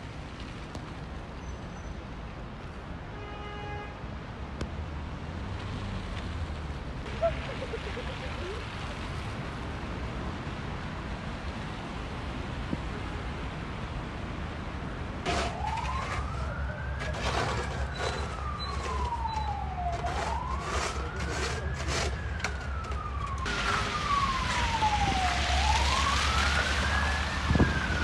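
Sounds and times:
traffic noise: 0.0 - 28.0
emergency siren wailing: 15.2 - 28.0
snow shovels scraping pavement: 15.3 - 22.7.

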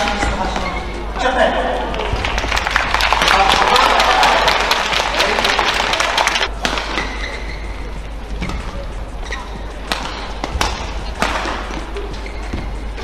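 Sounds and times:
shoes squeaking on court: 0.1 - 1.2, 6.8 - 13.0
crowd applauding and cheering: 1.9 - 6.5
racket striking shuttlecock: 6.5 - 7.4, 9.8 - 12.6.

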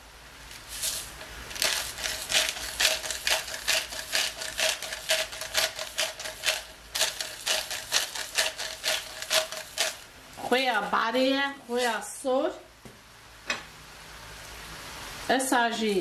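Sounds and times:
grinder crunching salt crystals: 0.5 - 10.0.

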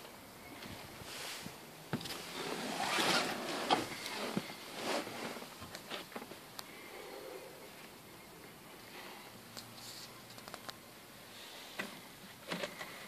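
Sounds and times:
clothing and upholstery rustling: 1.1 - 6.4.

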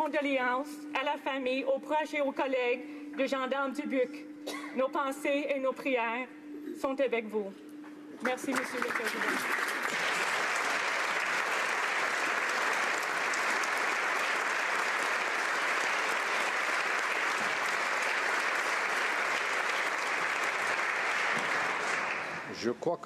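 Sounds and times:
crowd applauding: 8.2 - 22.7.

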